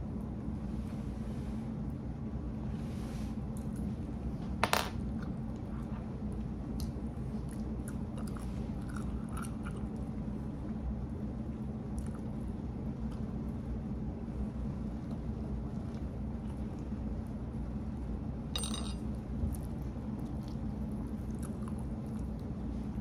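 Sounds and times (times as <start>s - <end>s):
steady low hum: 0.0s - 23.0s
person chewing food: 6.8s - 10.0s.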